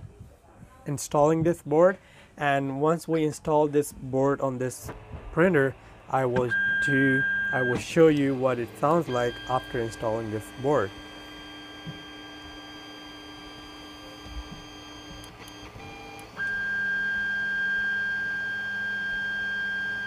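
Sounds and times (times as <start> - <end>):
high-pitched stepper motor whine: 4.8 - 20.0
short beep: 6.5 - 7.9, 9.1 - 10.9.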